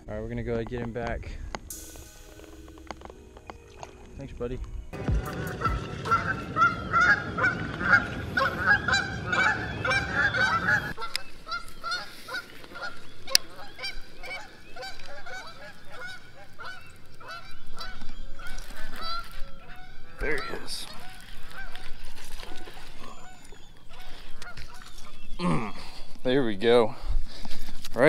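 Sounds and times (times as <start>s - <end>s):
geese honking: 5.0s - 25.3s.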